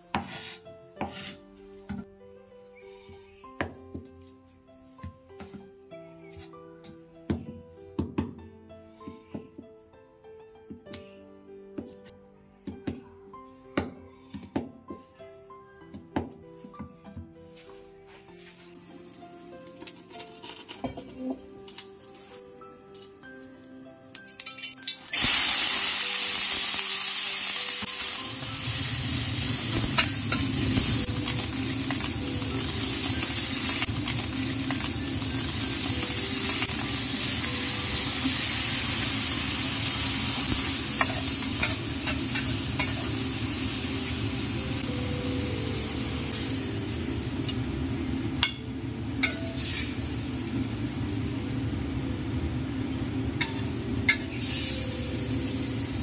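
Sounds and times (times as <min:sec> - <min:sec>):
metal spatula scraping a wok: 0:00.1 - 0:01.4, 0:40.4 - 0:43.2, 0:53.4 - 0:54.4
oil sizzling in a wok: 0:24.2 - 0:56.0.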